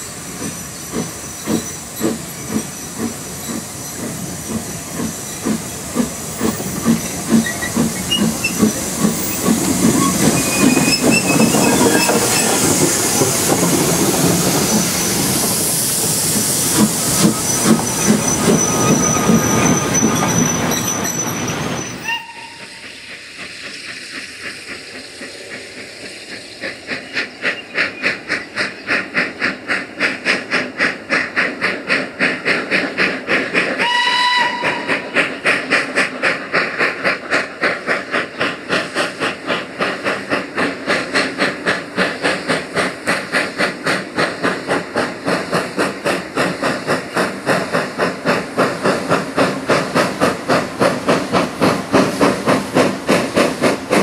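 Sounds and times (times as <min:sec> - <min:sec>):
steam engine hissing: 0:00.0 - 0:54.0
steam locomotive exhaust beats: 0:00.0 - 0:54.0
steam whistle: 0:22.0 - 0:22.8, 0:33.8 - 0:35.1.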